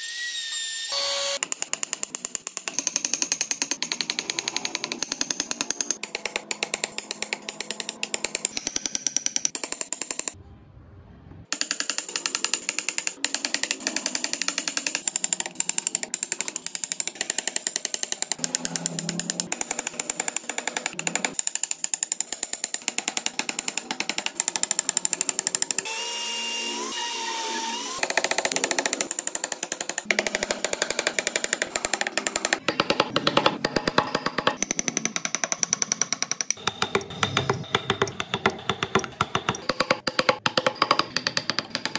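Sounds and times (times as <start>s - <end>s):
chisel tapping into wood: 28.4s - 41.9s.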